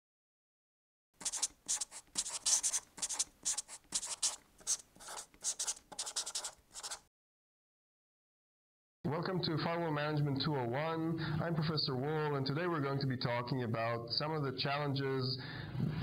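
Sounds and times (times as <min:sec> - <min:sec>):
marker writing on a whiteboard: 0:01.2 - 0:07.0.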